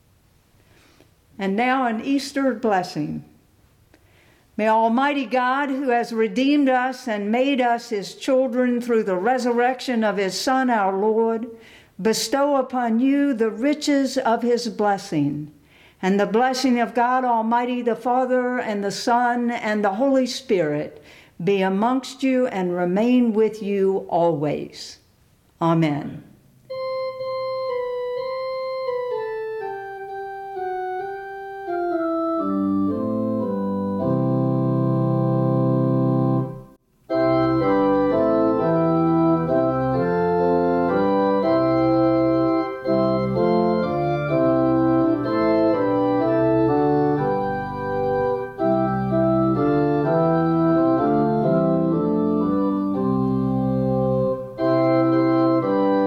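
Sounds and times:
organ playing chords: 26.6s - 56.0s.

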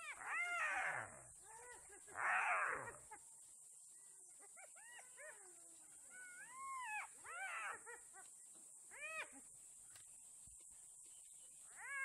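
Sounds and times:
wild dogs and hyenas yelping: 0.0s - 3.2s, 4.4s - 8.3s, 11.7s - 12.0s.

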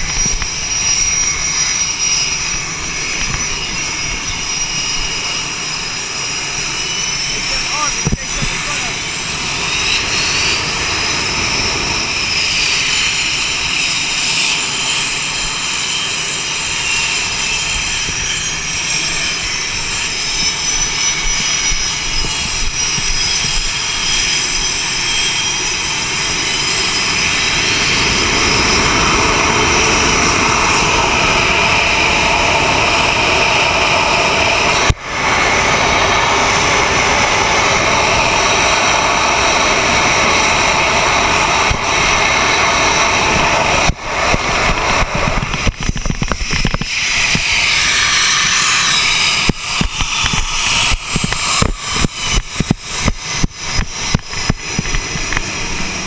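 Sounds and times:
jet engines rumbling and whining: 0.0s - 56.0s.

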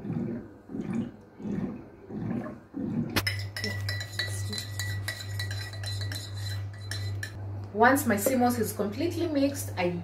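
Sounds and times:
water pouring into a glass: 0.0s - 3.2s
low glugging: 0.0s - 3.8s
low steady hum: 0.0s - 10.0s
teaspoon clinking in a glass: 3.2s - 7.4s.

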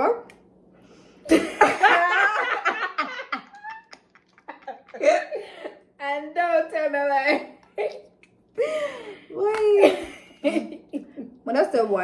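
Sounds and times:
woman laughing loudly: 1.3s - 5.8s.

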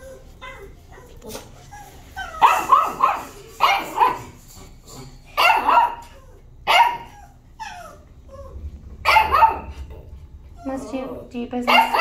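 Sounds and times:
dog barking: 2.4s - 4.4s, 5.4s - 7.2s, 9.0s - 9.8s, 11.7s - 12.0s.

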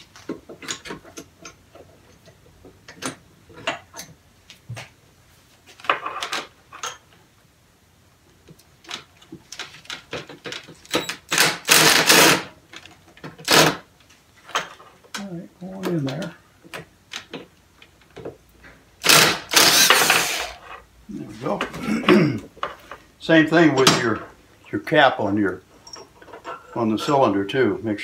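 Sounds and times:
cordless driver running: 19.0s - 20.5s.

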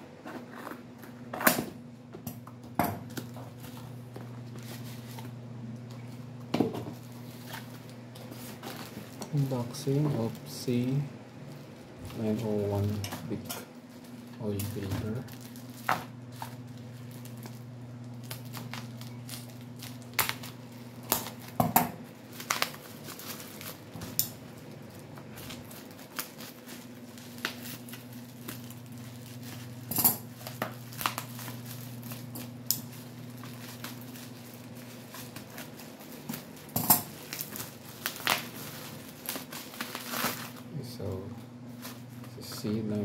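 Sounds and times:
steady low hum: 0.0s - 43.0s
plastic crinkling: 2.5s - 43.0s
scissors snipping bubble wrap: 14.4s - 24.4s, 25.4s - 40.6s.

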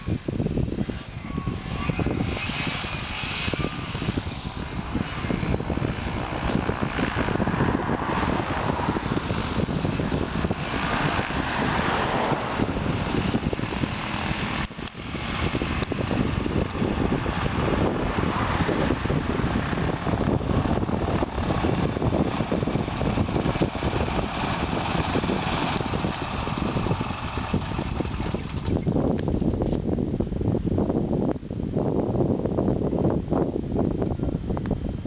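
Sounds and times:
microlight engine and propeller: 0.0s - 35.0s.

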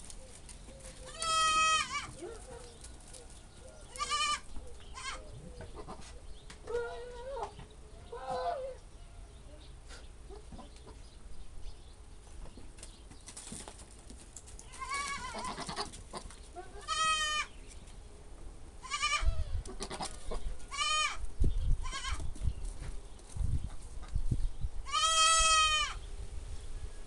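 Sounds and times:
goats bleating: 1.1s - 2.2s, 4.0s - 4.4s, 14.7s - 17.5s, 18.8s - 21.2s, 24.9s - 26.0s.

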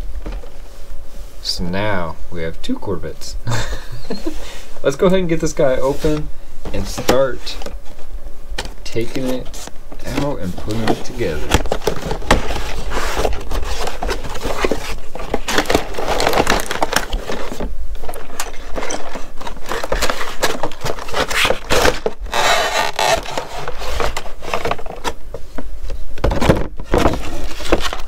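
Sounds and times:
cardboard and plastic handling: 5.9s - 8.0s, 8.6s - 28.0s.

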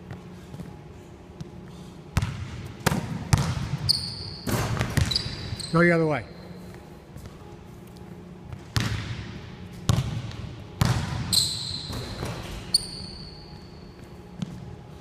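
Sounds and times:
sneaker squeaks: 3.6s - 7.4s, 10.8s - 14.6s.

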